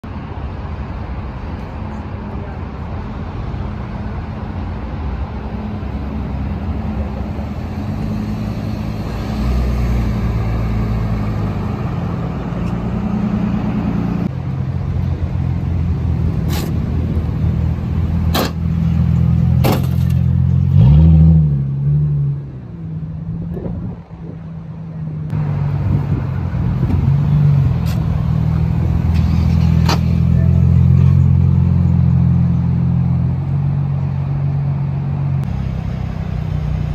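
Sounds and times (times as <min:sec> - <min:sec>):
car engines idling: 0:00.2 - 0:20.8, 0:21.7 - 0:36.9
engine revving: 0:18.2 - 0:22.7.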